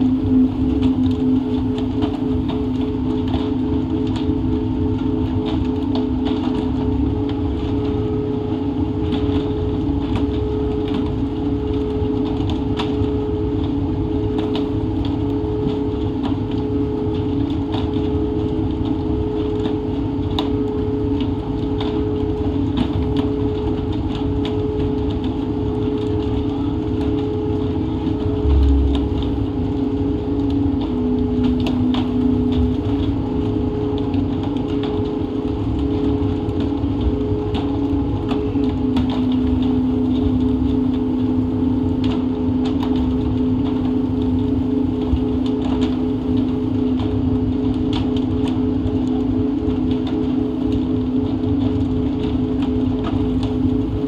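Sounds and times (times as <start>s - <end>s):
boat engine humming: 0.0s - 6.3s, 24.6s - 47.6s
heavy low thump: 28.4s - 29.6s.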